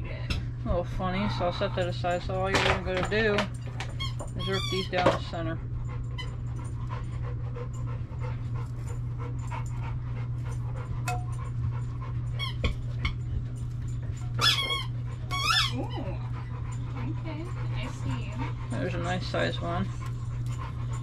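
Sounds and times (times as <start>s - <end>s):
steady low hum: 0.0s - 21.0s
dog whining: 3.9s - 5.0s, 14.4s - 19.0s.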